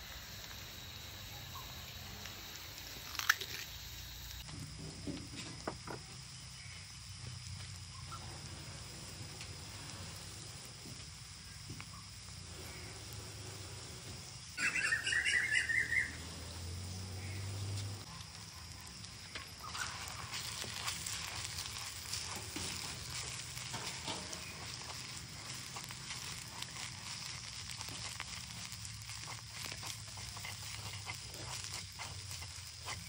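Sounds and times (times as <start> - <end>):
food sizzling in hot oil: 0.0 - 33.0.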